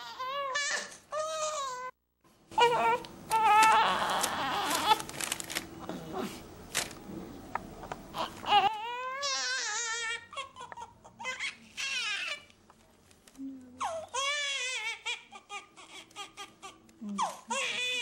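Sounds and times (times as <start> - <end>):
baby crying: 0.0 - 2.0, 2.6 - 5.1, 8.1 - 12.5, 13.8 - 18.0
handling rustling and clicks: 5.0 - 5.7.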